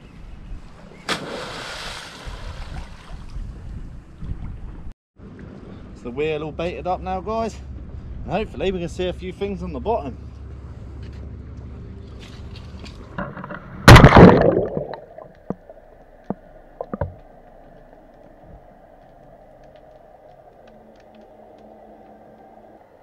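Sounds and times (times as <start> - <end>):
faint underwater hum: 5.2 - 23.0
crab pot splashing into water: 13.9 - 15.4.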